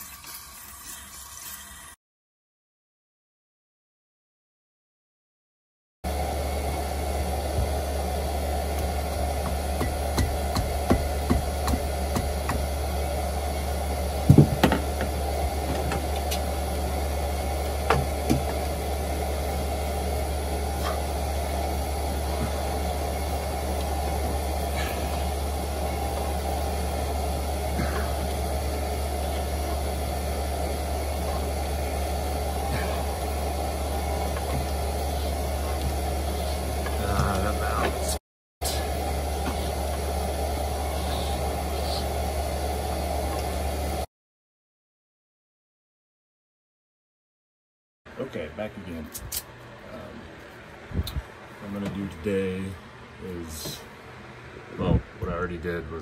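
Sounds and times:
steady low hum: 6.1 - 44.1
knocks and clicks on engine: 8.8 - 12.7.

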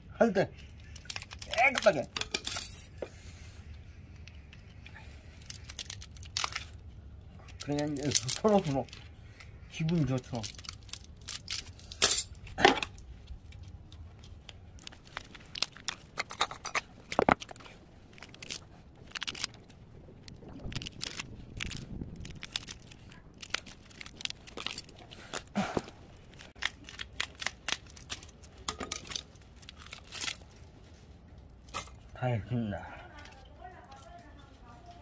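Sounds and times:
copper wire snapping and tearing: 0.9 - 2.7, 5.4 - 6.8, 9.9 - 13.6, 14.4 - 25.5, 26.2 - 30.5.

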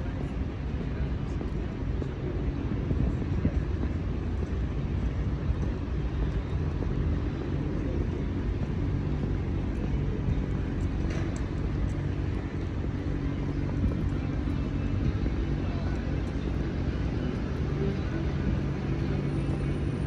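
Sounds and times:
passing vehicle engines rumbling: 0.0 - 20.0.

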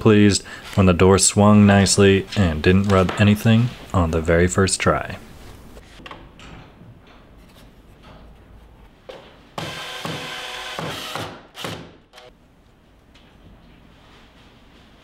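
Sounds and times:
cordless drill driving a screw: 9.6 - 12.3.

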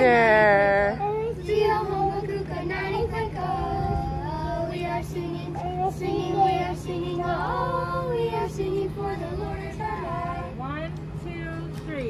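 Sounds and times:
steady low hum: 0.0 - 12.0
child singing: 1.0 - 10.6.

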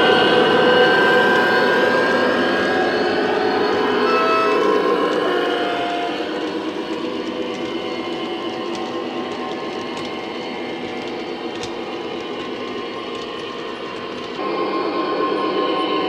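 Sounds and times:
model locomotive diesel engine: 0.0 - 16.0
faint clicks from track: 4.1 - 14.4.

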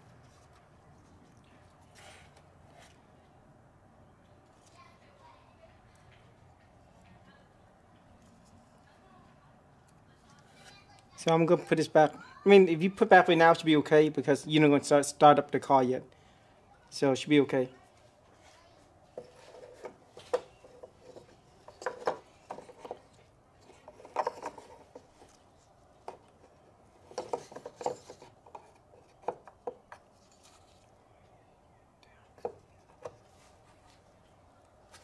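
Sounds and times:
plastic clicks and rubbing: 19.2 - 25.4, 26.0 - 30.7.

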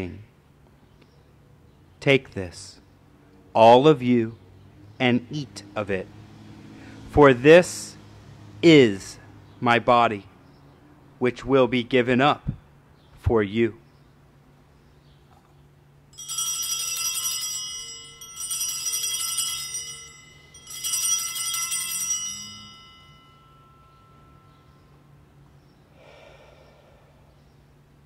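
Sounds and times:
altar bells ringing: 16.1 - 26.0.

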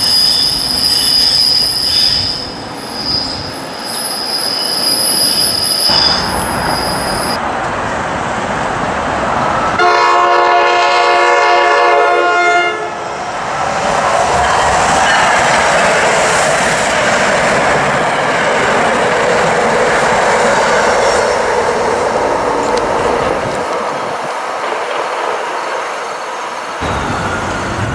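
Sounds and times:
train running on rails: 0.0 - 27.9
train horn blast: 9.8 - 13.0.

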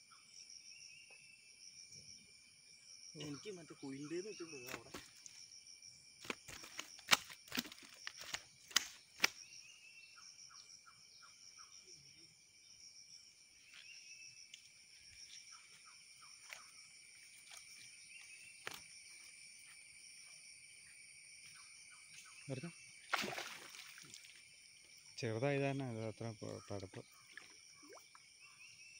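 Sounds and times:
insects chorus: 0.0 - 28.9
fish slapping on mud: 4.7 - 5.3, 6.2 - 9.4, 23.1 - 24.3.

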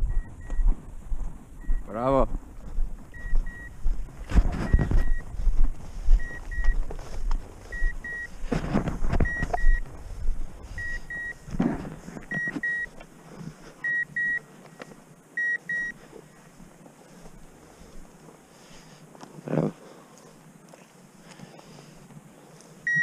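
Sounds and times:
footsteps through dry grass: 0.0 - 13.8, 14.4 - 22.8
short high beeps: 3.2 - 3.8, 4.6 - 5.2, 12.3 - 12.9.

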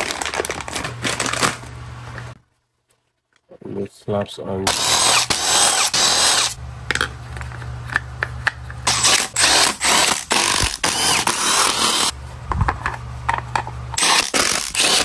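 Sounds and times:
power tool running in bursts: 4.7 - 6.6, 8.9 - 12.1, 14.0 - 15.0.

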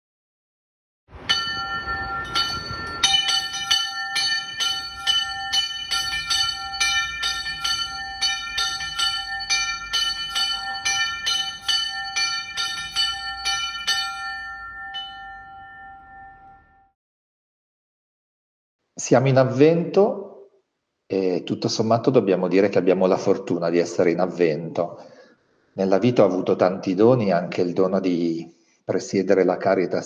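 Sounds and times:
bells ringing a peal: 1.2 - 16.9.

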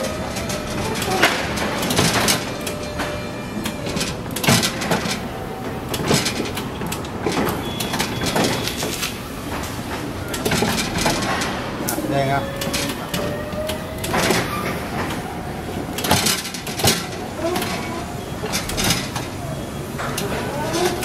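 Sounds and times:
pallet truck clanks and knocks: 0.0 - 21.0
steady machine noise: 0.0 - 21.0.

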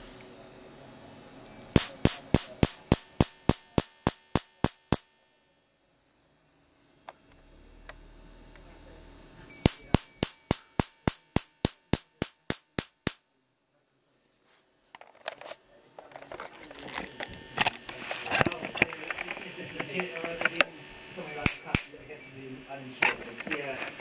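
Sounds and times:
faint low hum: 0.0 - 11.0
sharp spark cracks: 1.5 - 5.1, 9.6 - 13.2, 21.4 - 22.0.

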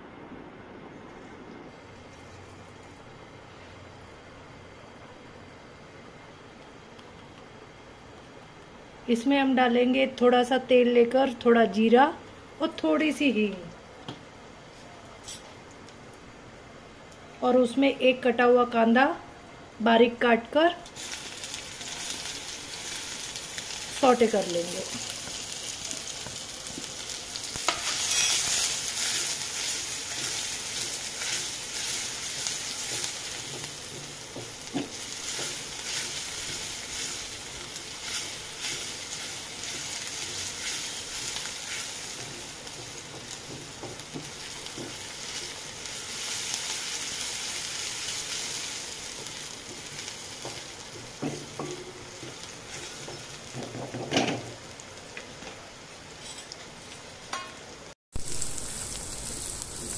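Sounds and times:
onion sizzling in hot oil: 20.8 - 59.9
spoon scraping a pan: 27.7 - 37.2.

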